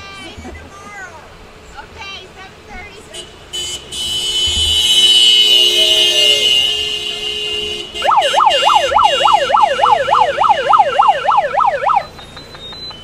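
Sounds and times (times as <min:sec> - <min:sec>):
electronic siren yelping: 0:08.0 - 0:13.0
steady high tone: 0:08.0 - 0:13.0.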